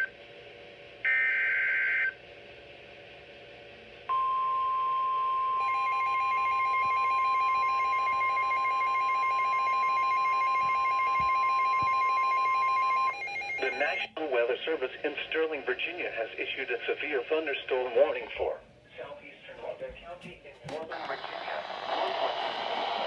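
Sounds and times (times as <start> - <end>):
steady warning alarm tone: 4.1 - 14.1.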